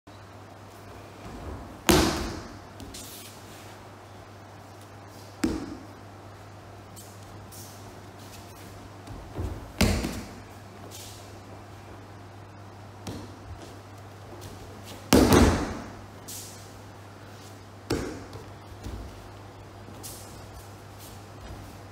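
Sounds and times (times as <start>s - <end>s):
low steady hum: 0.1s - 21.9s
bodies thudding on mats: 1.1s - 3.1s, 9.0s - 10.4s, 14.4s - 16.0s, 17.8s - 19.3s.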